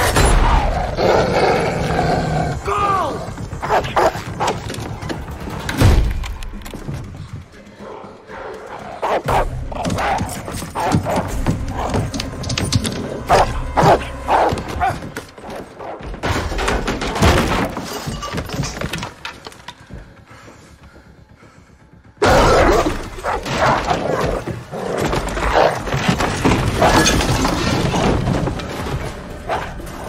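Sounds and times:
dog barking: 9.0s - 12.0s, 13.3s - 15.0s
glass crashing and shattering: 16.3s - 19.2s.

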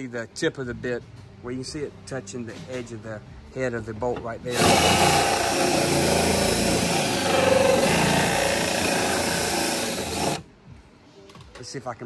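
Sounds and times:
power tool grinding through plastic: 4.5s - 10.4s.

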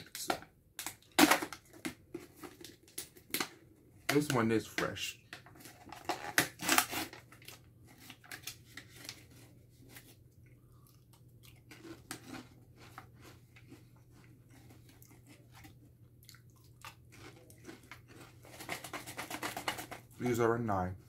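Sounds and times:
crunching potato crisps: 5.6s - 20.4s.

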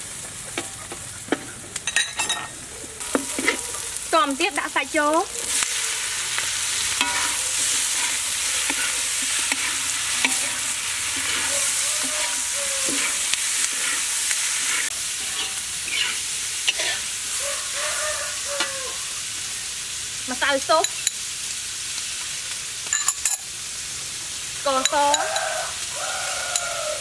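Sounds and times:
oil sizzling in a wok: 0.0s - 27.0s
metal spatula scraping a wok: 5.5s - 17.2s.

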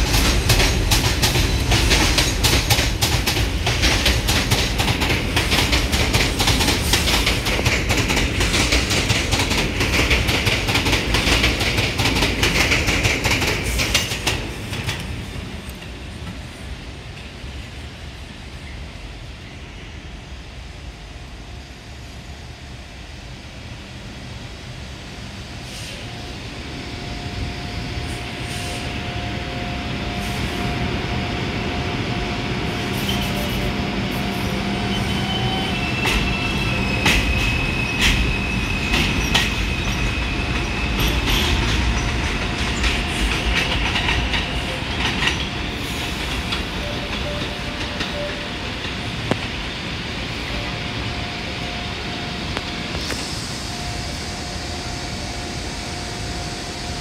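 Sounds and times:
wheels clattering on rails: 0.0s - 16.4s, 35.0s - 49.6s
train whine: 0.0s - 57.0s
high wheel squeal: 34.7s - 43.8s.

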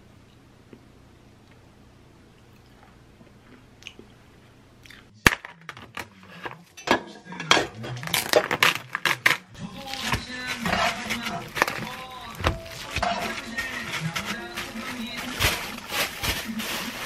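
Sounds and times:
plastic film peeling and crackling: 8.0s - 17.0s
background music: 9.6s - 17.0s.

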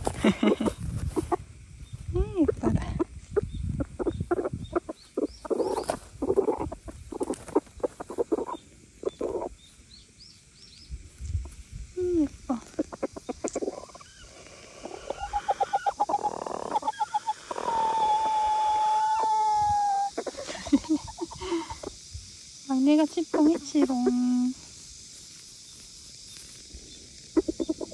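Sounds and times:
hens clucking: 0.0s - 1.4s, 2.4s - 9.6s, 12.4s - 22.1s, 22.9s - 24.6s, 27.2s - 27.9s
hen long drawn-out call: 12.8s - 21.9s.

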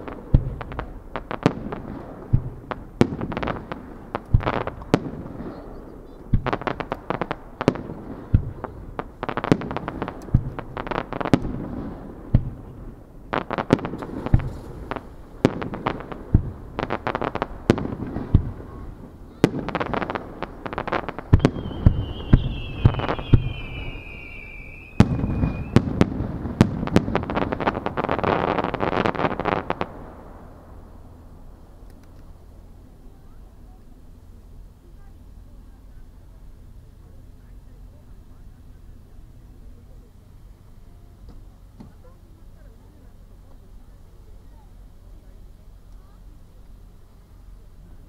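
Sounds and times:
fireworks bangs: 0.0s - 34.3s
fireworks crackling: 0.0s - 48.0s
falling firework whistle: 21.3s - 26.1s.

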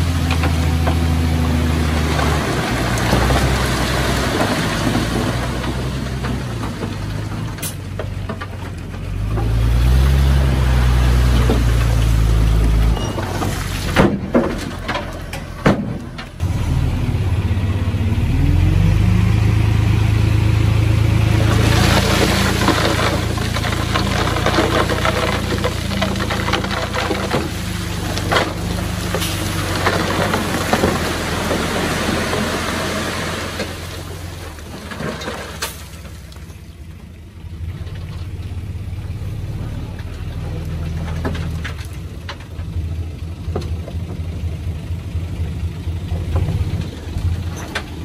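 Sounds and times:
bulldozer diesel engine revving: 0.0s - 7.8s, 9.1s - 13.9s, 15.5s - 35.6s
dense rattling clatter: 21.8s - 27.7s.

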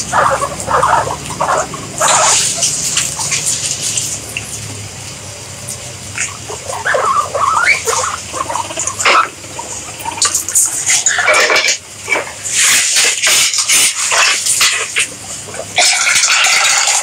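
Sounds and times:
guinea pigs squeaking: 0.0s - 4.6s, 5.3s - 17.0s
animals crunching food: 0.0s - 17.0s.

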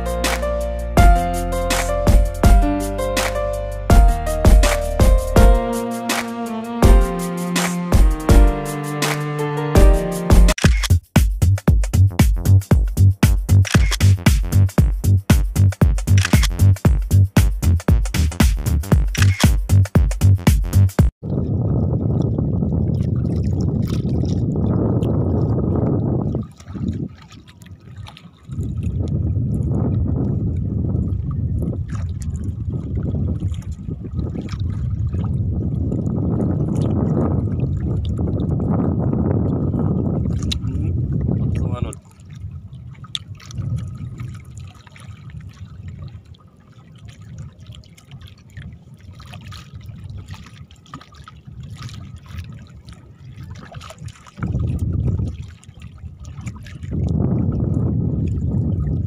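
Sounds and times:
water lapping around boat: 21.2s - 59.0s
wind rumbling on microphone: 21.2s - 59.0s
small splashes: 26.2s - 29.2s, 41.9s - 57.0s.

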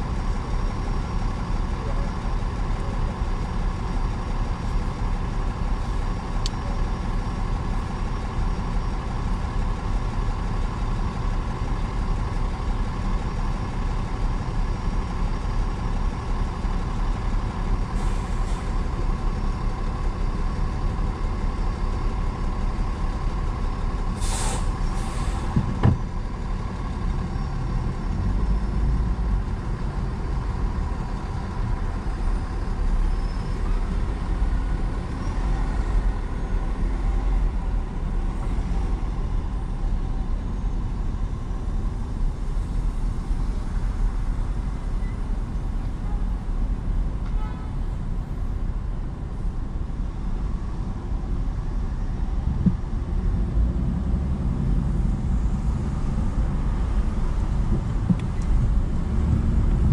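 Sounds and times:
bus engine idling: 0.0s - 59.9s
air brake hisses: 18.0s - 18.7s, 24.2s - 25.6s.

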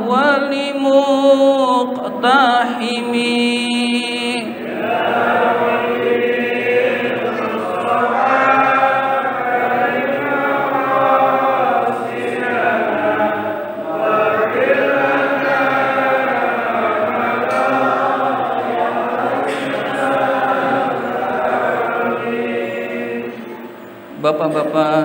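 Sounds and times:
group of voices chanting: 4.4s - 23.6s.

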